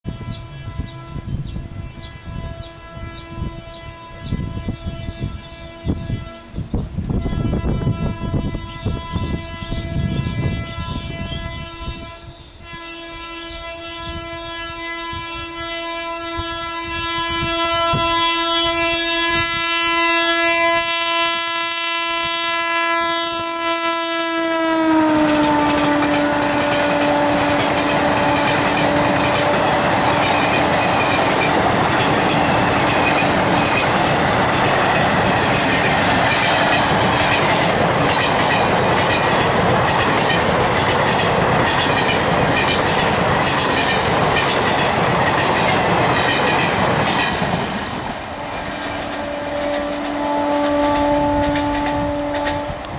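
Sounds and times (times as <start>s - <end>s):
train horn blast: 0.0s - 47.5s, 48.4s - 52.9s
train wheels rumbling on track: 13.5s - 52.9s.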